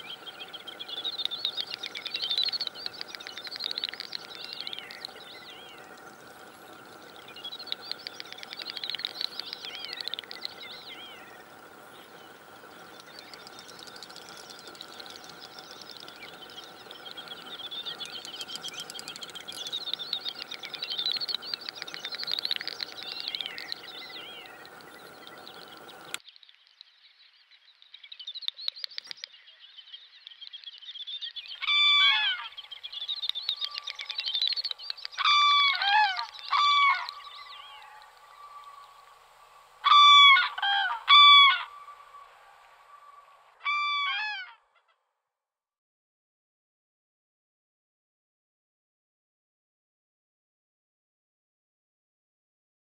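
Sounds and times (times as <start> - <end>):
high twittering bird calls: 0.0 - 39.2, 39.8 - 44.9
cranes trumpeting: 35.2 - 44.6.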